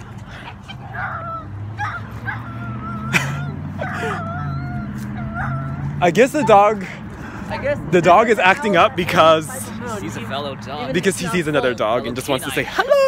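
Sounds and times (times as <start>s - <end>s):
dog whining: 0.8s - 3.2s, 3.8s - 5.8s.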